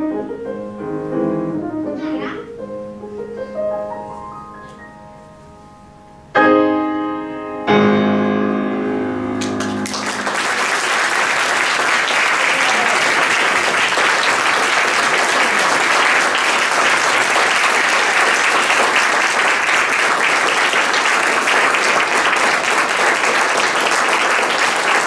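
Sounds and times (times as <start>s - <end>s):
audience applauding: 9.4s - 25.0s.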